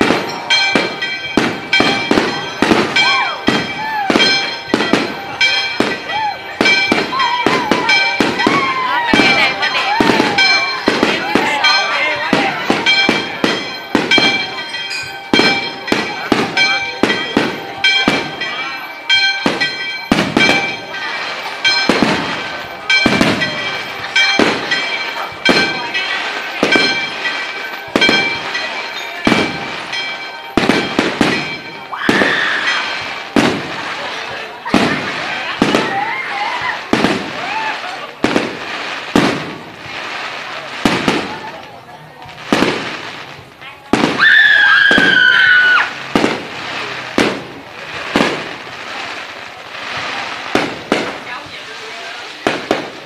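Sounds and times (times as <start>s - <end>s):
fireworks bursting with echo: 0.0s - 53.0s.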